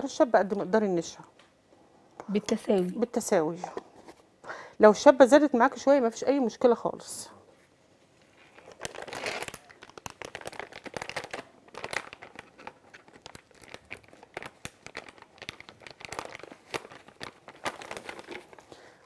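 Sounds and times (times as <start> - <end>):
plastic crinkling: 8.2 - 19.0.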